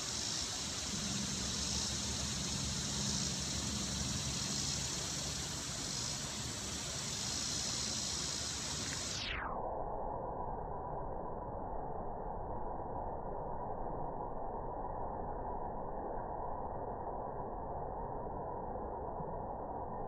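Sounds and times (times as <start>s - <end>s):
faint low hum: 0.0s - 9.3s
outdoor background hiss: 0.0s - 9.5s.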